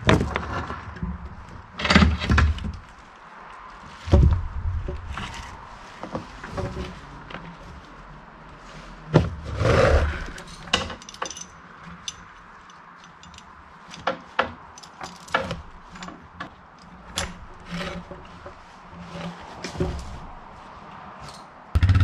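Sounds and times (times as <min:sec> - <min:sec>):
metal chain clinking: 0:10.4 - 0:16.2.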